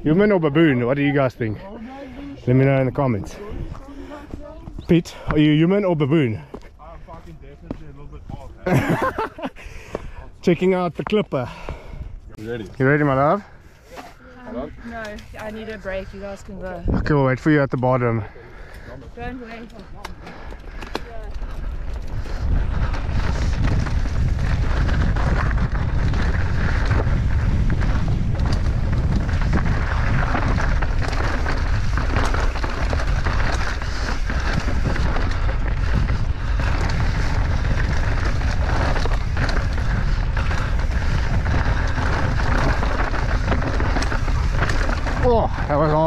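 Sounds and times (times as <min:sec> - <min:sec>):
wind buffeting microphone: 0:02.1 - 0:05.6, 0:18.5 - 0:46.0
tyres crunching over stones: 0:19.7 - 0:46.0.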